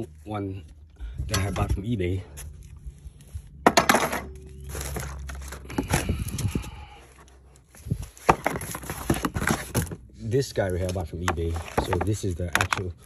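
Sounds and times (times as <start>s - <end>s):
plastic and bubble wrap crinkling: 4.4s - 13.0s.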